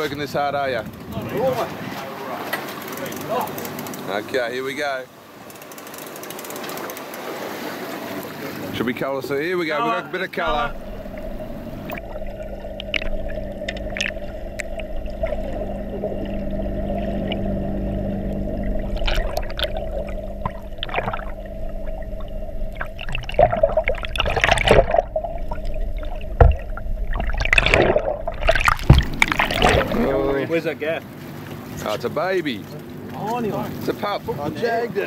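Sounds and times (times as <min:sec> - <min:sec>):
underwater gurgling and bubbling: 0:10.5 - 0:30.4
steady low hum: 0:10.5 - 0:30.5
rushes of bubbles and churning water: 0:10.5 - 0:31.8.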